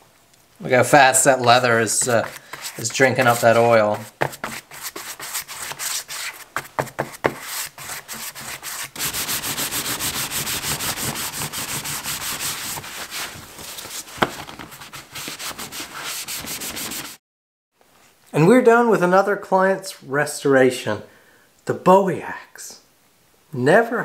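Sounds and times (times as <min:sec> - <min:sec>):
cloth rubbing leather: 0:01.1 - 0:17.2
brush strokes on leather: 0:01.2 - 0:06.5.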